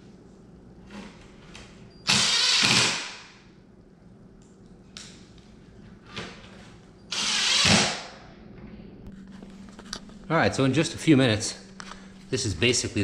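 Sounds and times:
cordless drill driving fastener: 7.1 - 7.9.

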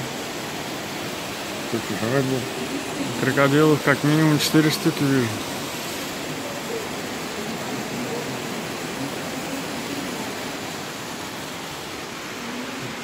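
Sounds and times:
steady rushing noise: 0.0 - 13.0
faint indistinct voices: 5.2 - 10.7, 12.2 - 13.0.

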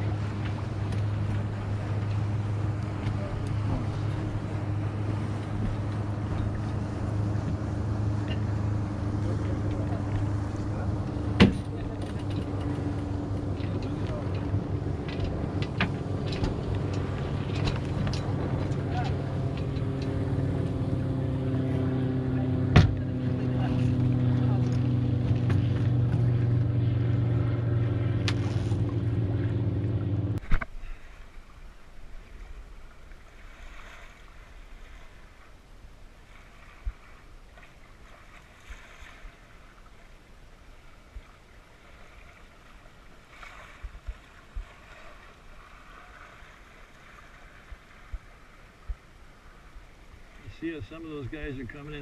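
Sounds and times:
boat engine humming: 0.0 - 52.0
water washing along hull: 0.0 - 52.0
light knocks on hull: 11.1 - 18.8, 22.7 - 23.1.

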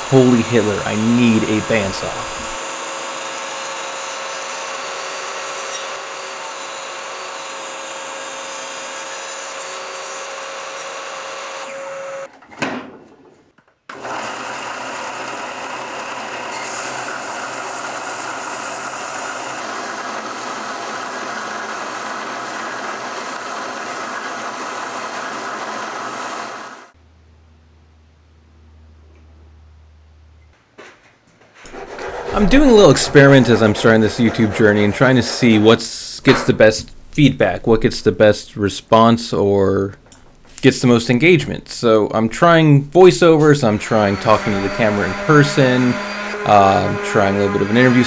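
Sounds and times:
belt sander sanding wood: 0.0 - 11.7, 13.9 - 27.0, 31.7 - 36.7, 43.2 - 48.0
table saw whine: 0.0 - 12.3, 13.9 - 27.0, 31.7 - 36.5, 43.3 - 48.0.

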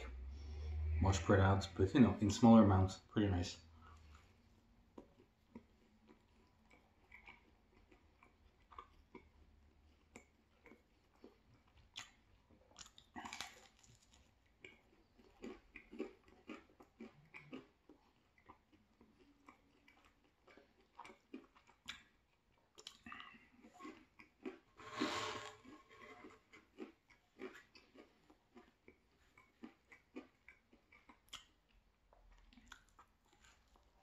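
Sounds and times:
crunching pizza crust: 4.9 - 34.0
wet mouth clicks: 30.4 - 31.6.

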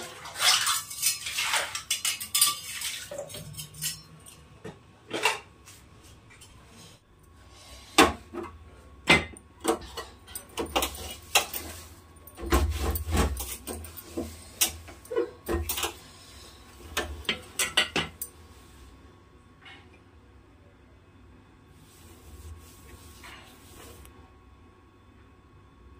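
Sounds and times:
metal cookware clinking and scraping: 0.0 - 4.5.

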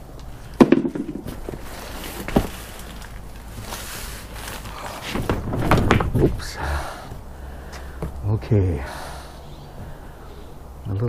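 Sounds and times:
plastic wrap rustling: 1.2 - 6.5.

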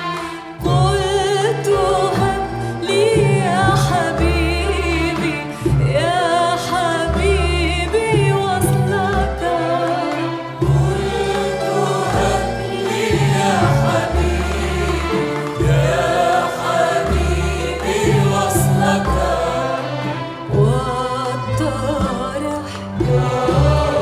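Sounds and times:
choir singing: 0.0 - 24.0
string orchestra: 0.0 - 24.0
deep bass notes: 10.6 - 19.8.

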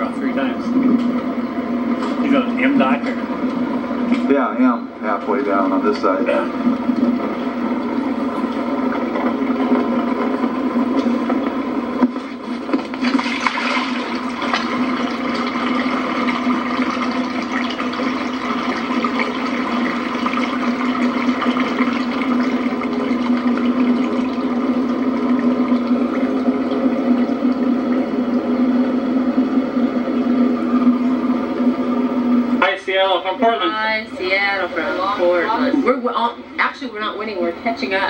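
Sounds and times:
motorboat engine humming: 0.0 - 38.0
water washing along hull: 6.5 - 38.0.

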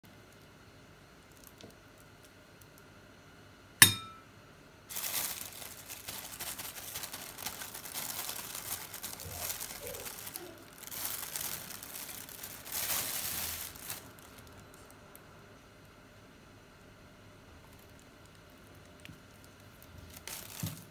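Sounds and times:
metal spoon clinking on glass bowl: 3.8 - 4.2
plastic bag crinkling: 4.9 - 15.2, 17.6 - 20.9.

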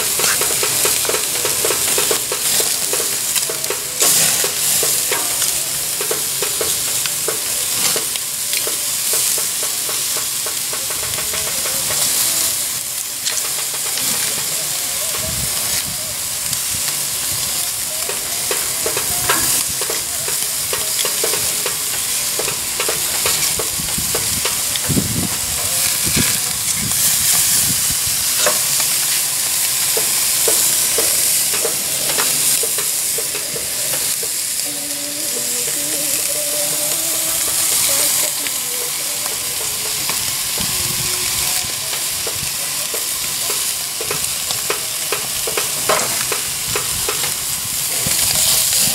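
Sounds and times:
meat sizzling on a grill: 0.0 - 48.9.

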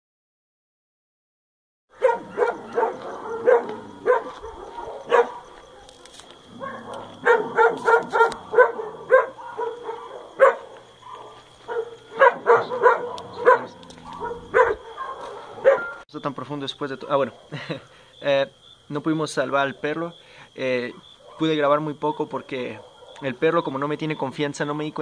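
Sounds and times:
dog barking: 1.9 - 16.0, 20.9 - 21.7, 22.6 - 23.4.

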